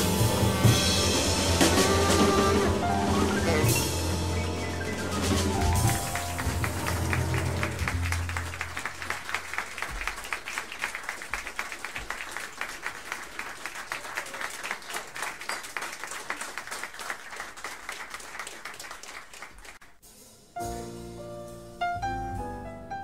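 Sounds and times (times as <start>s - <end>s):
piano notes: 0.0s - 8.8s, 20.6s - 23.0s
audience applauding: 1.6s - 19.8s.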